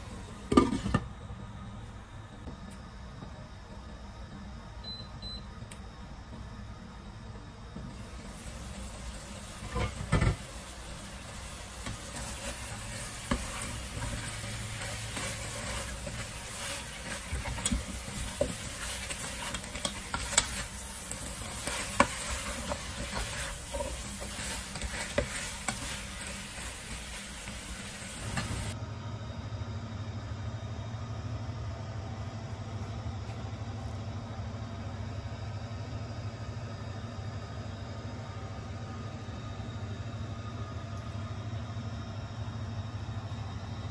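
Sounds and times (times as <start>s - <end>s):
steady low hum: 0.0s - 43.9s
sauce sizzling: 8.0s - 28.8s
spatula scraping and tapping pot: 11.8s - 26.8s.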